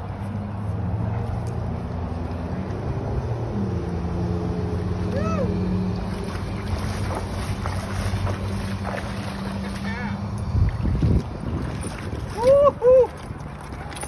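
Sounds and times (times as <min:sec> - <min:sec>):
wind on microphone: 0:10.2 - 0:13.8.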